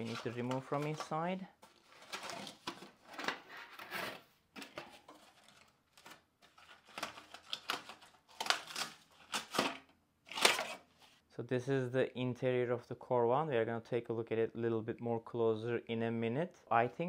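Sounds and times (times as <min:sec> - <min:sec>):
cardboard scraping and rustling: 0:00.0 - 0:07.3.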